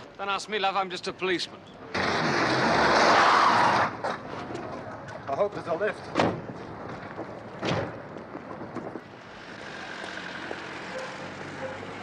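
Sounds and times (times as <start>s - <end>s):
van driving by: 9.0s - 12.0s.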